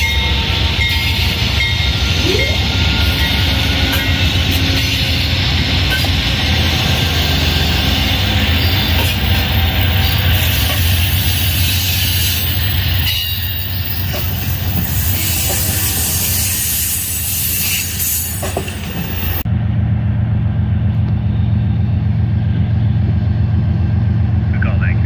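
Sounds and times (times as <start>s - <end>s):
train wheels rolling: 0.0s - 19.5s
diesel locomotive engine drone: 0.0s - 25.0s.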